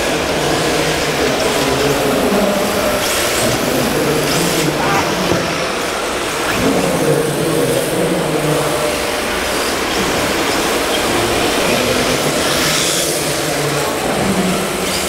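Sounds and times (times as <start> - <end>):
large hall background noise: 0.0 - 15.0
tyres sliding: 4.3 - 5.8.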